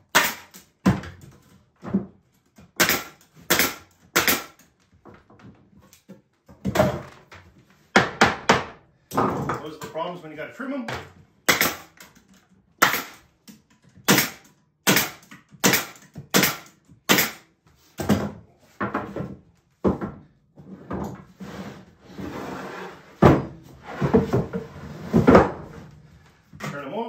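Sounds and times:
pneumatic stapler shots into wood: 0:00.1 - 0:00.7, 0:02.8 - 0:04.6, 0:11.5 - 0:12.1, 0:12.8 - 0:13.2, 0:14.0 - 0:17.4.

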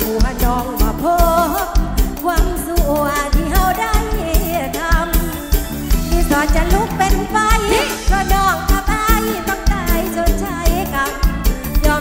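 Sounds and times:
woman singing into microphone: 0:00.0 - 0:05.4, 0:06.1 - 0:12.0
live band music: 0:00.0 - 0:12.0
steady drum beat: 0:01.8 - 0:09.8.

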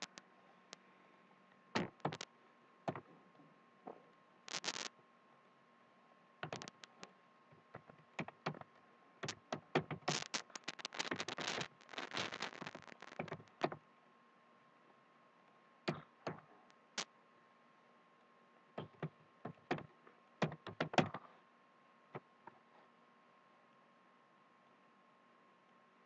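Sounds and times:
faint electrical tone: 0:03.6 - 0:07.4, 0:10.0 - 0:15.8.

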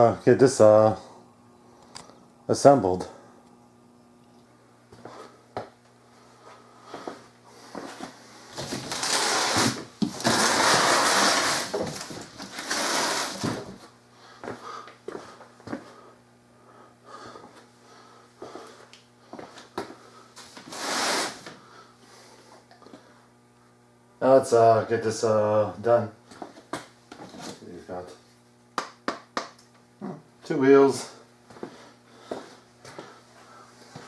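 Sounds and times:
cardboard box scraping on concrete: 0:08.7 - 0:13.6, 0:20.6 - 0:21.5.

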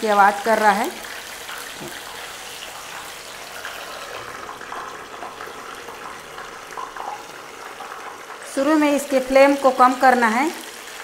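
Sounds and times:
hot oil sizzling: 0:00.0 - 0:11.0
faint crackling pops: 0:00.9 - 0:02.3.

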